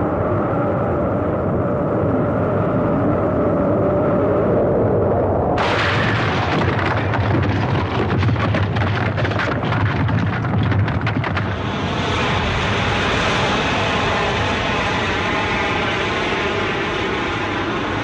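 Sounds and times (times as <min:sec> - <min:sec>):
explosion blast wave roar: 0:05.6 - 0:10.4
debris crackling: 0:05.6 - 0:11.7.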